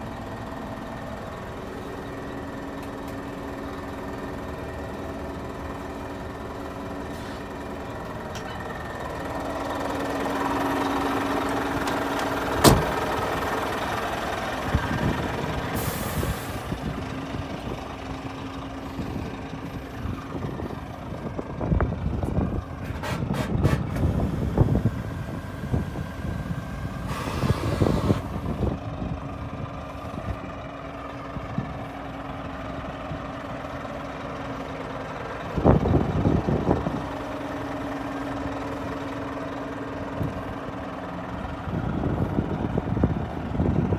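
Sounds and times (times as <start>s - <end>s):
diesel truck engine idling: 0.0s - 43.9s.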